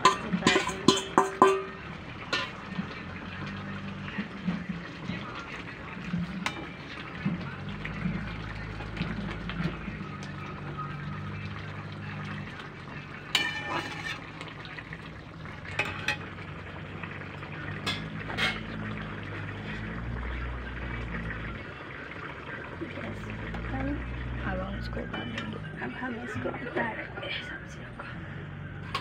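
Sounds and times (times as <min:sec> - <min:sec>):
curry simmering and sizzling: 0:00.0 - 0:29.0
spatula scraping metal pan: 0:13.4 - 0:14.3.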